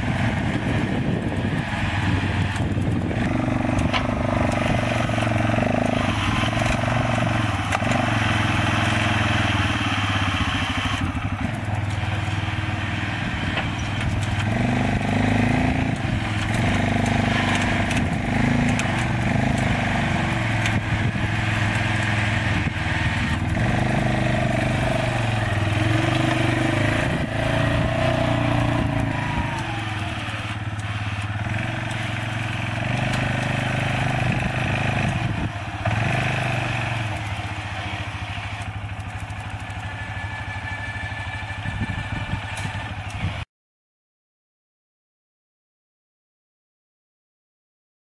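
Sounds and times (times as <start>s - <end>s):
atv engine running under load: 0.0s - 43.4s.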